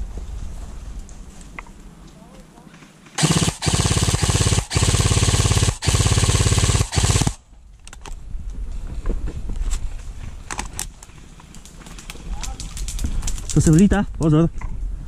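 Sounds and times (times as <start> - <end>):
airsoft gun firing full auto: 3.2 - 7.4.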